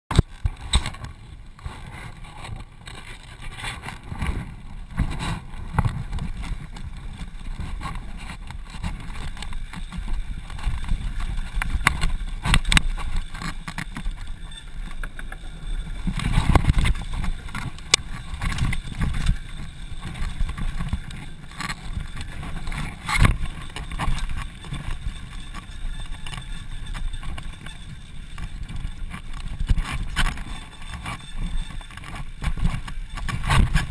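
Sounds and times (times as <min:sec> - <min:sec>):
bike rattling on wooden boardwalk: 0:00.1 - 0:33.9
bike tyres rumbling on dirt: 0:00.1 - 0:33.9.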